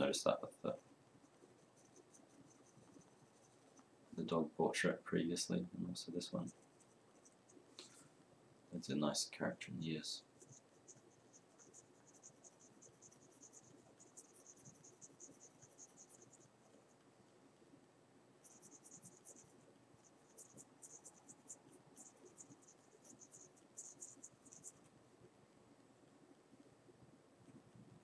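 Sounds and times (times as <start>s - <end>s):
pencil scratching on paper: 0.0s - 3.9s, 6.3s - 7.6s, 10.4s - 17.0s, 18.4s - 24.9s.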